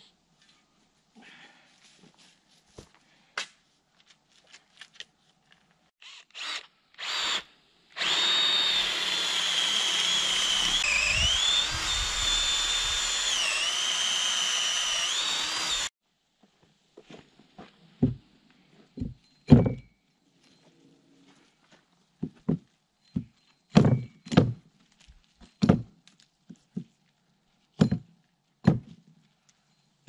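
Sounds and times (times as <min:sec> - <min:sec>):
electric drill whining: 0:06.0 - 0:15.9.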